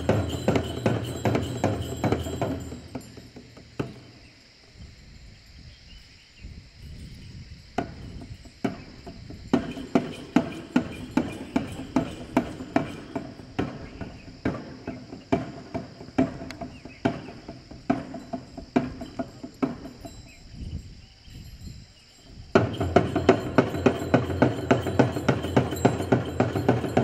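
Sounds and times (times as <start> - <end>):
frame drum beaten by hand: 0.0 - 4.2, 22.6 - 27.0.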